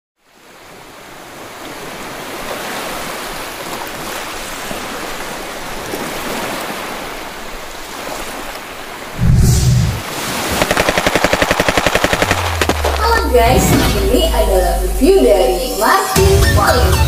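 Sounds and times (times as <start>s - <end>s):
sea waves washing onto beach: 0.4s - 13.3s.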